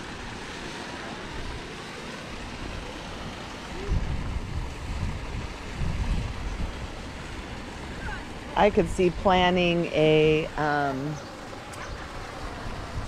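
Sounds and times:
wind buffeting microphone: 1.2 - 13.0
pouring lapping water: 10.3 - 13.0.

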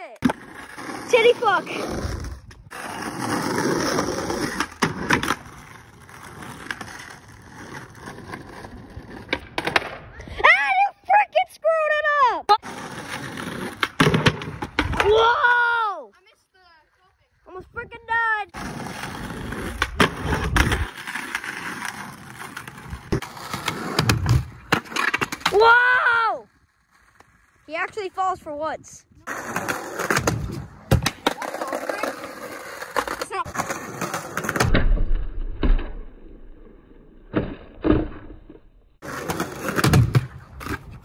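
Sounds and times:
skateboard wheels rolling on asphalt: 0.0 - 34.8, 35.7 - 41.0
skateboard clacks: 29.3 - 34.7.

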